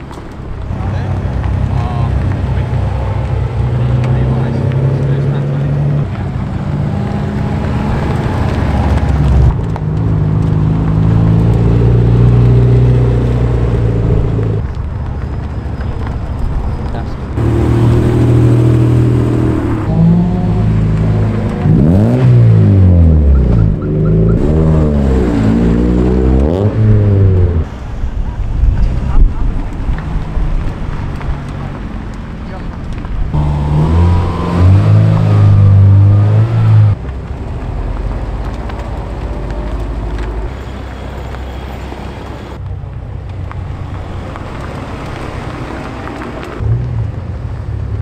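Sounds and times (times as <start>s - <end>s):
car engines driving away: 0.0s - 48.0s
engine revving: 17.4s - 27.7s, 33.3s - 37.0s.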